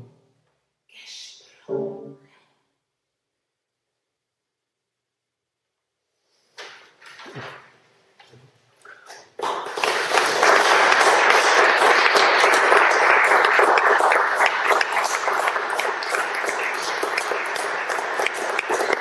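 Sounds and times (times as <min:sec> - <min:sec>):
audience applause: 0:09.4 - 0:19.0.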